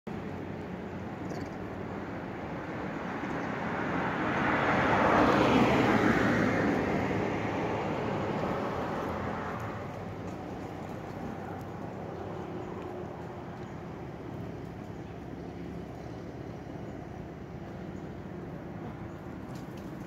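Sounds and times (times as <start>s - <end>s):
car driving past: 3.1s - 18.2s.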